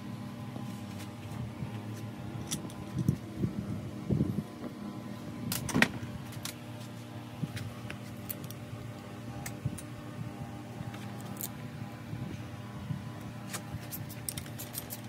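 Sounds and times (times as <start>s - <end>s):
steady background hum: 0.0s - 15.0s
metal parts knocking and clinking: 2.4s - 3.2s, 13.8s - 15.0s.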